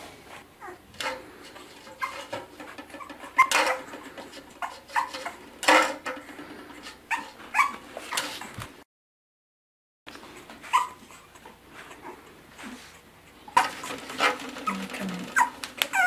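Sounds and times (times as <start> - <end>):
puppy whimpering and yipping: 0.6 - 0.8, 7.1 - 7.8, 10.4 - 12.8, 14.7 - 16.0
plastic cups scraping on tile: 0.9 - 8.6, 13.5 - 16.0.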